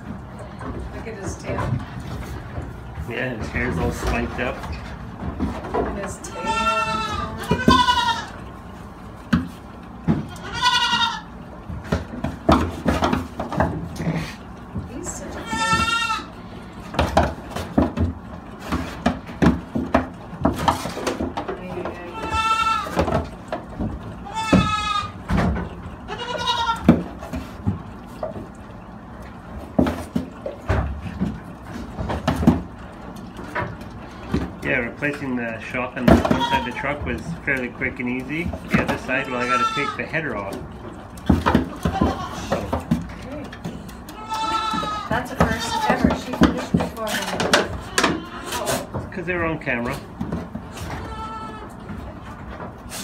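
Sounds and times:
goat kid bleating: 0:06.2 - 0:08.4, 0:10.2 - 0:11.3, 0:15.3 - 0:16.8, 0:22.0 - 0:23.0, 0:24.2 - 0:25.2, 0:26.1 - 0:26.9, 0:36.2 - 0:36.8, 0:39.2 - 0:40.1, 0:41.7 - 0:42.7, 0:44.1 - 0:46.0, 0:47.7 - 0:48.9, 0:50.9 - 0:51.8.

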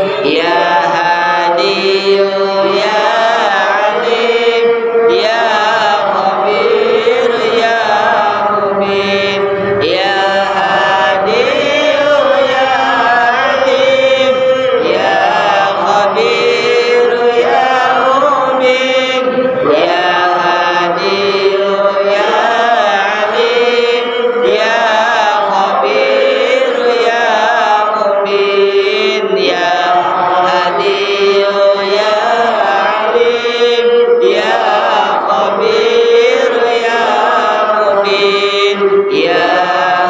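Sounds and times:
melodic chanting: 0:00.0 - 0:40.0.

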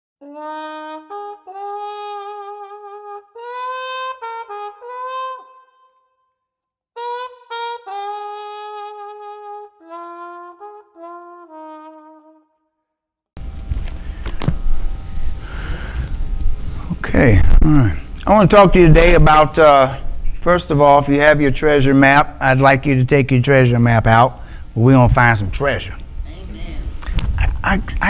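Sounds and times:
brass melody of held notes: 0:00.2 - 0:06.1, 0:07.0 - 0:12.6.

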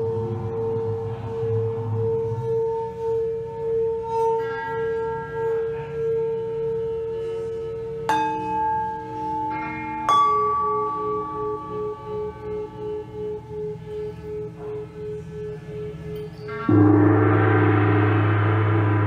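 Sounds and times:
metal bowls ringing: 0:00.0 - 0:19.0
sharp strikes on metal bowls: 0:08.1 - 0:13.6, 0:16.1 - 0:19.0.

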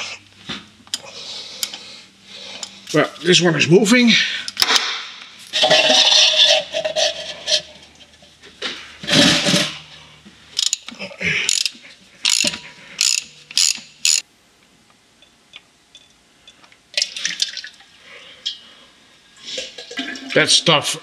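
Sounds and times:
ratchet wrench clicking: 0:10.6 - 0:10.9, 0:11.5 - 0:14.2.

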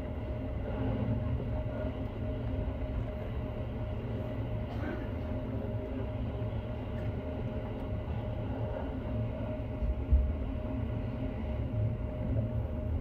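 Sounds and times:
steady hum: 0:00.0 - 0:13.0
train wheels rumbling on rail: 0:00.0 - 0:13.0.

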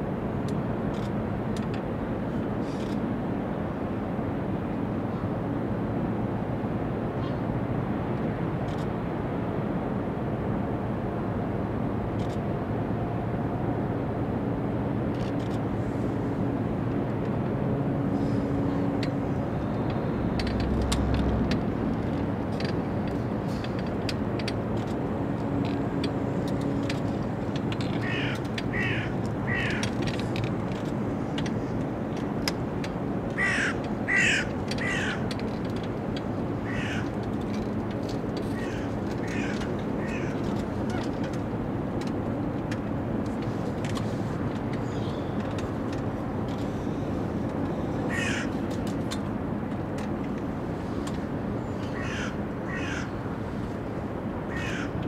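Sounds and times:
crow cawing: 0:28.0 - 0:29.9, 0:33.4 - 0:35.2, 0:36.6 - 0:37.1, 0:38.6 - 0:40.4, 0:48.1 - 0:48.6, 0:51.9 - 0:53.2, 0:54.5 - 0:55.0.

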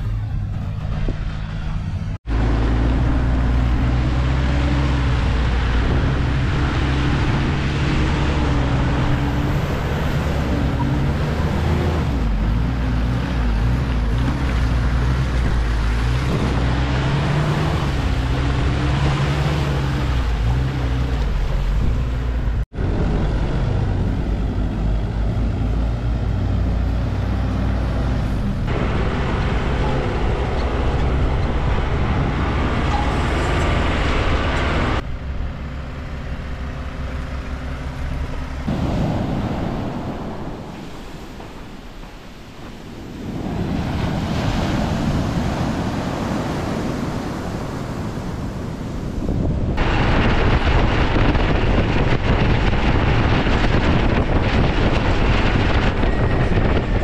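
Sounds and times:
truck engine under load: 0:00.0 - 0:57.0.

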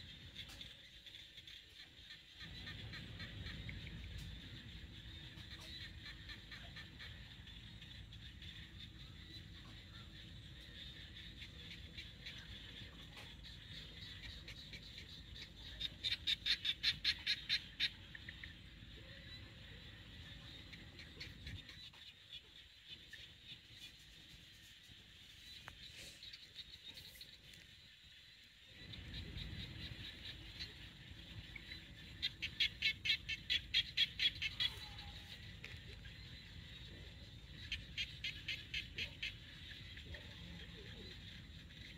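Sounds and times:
faint high-pitched animal calling: 0:34.2 - 0:35.8.

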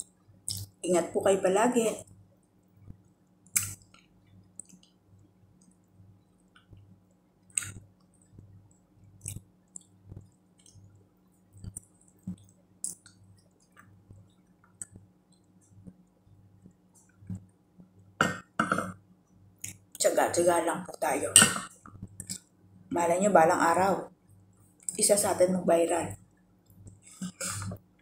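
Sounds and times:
faint steady hum: 0:00.0 - 0:28.0
chewing and wet mouth smacks: 0:06.6 - 0:08.4, 0:09.2 - 0:10.9, 0:11.6 - 0:13.9.

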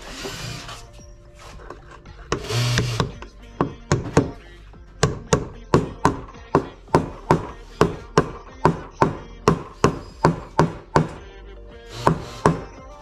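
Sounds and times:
hammer tapping on metal: 0:05.0 - 0:11.2.

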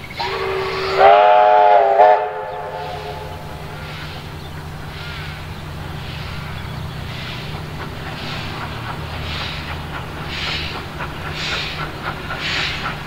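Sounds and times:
locomotive rumbling: 0:00.0 - 0:13.0
steam locomotive whistle: 0:00.1 - 0:04.3.

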